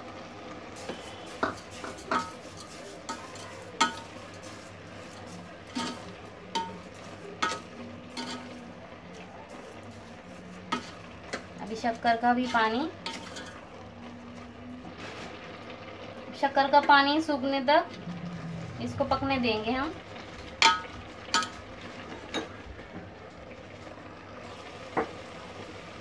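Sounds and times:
spoon stirring wet mix: 0:00.8 - 0:14.5.

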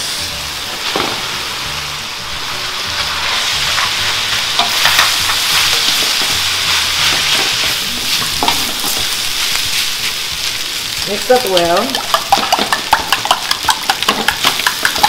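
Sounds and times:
rice sizzling in hot oil: 0:00.0 - 0:15.0
spatulas stirring in a wok: 0:02.2 - 0:15.0.

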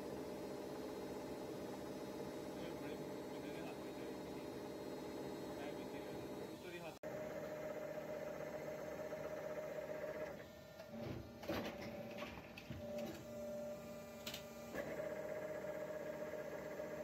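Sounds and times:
machine humming: 0:00.0 - 0:17.0.

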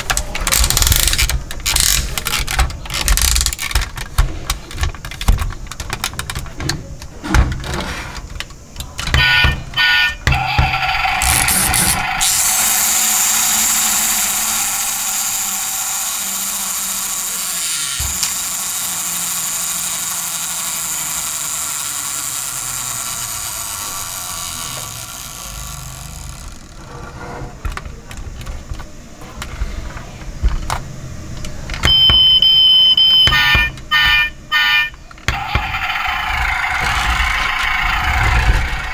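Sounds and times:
toy engine sound effect: 0:00.2 - 0:03.8, 0:09.1 - 0:27.0, 0:31.9 - 0:38.9
loud high beep: 0:31.9 - 0:35.0.

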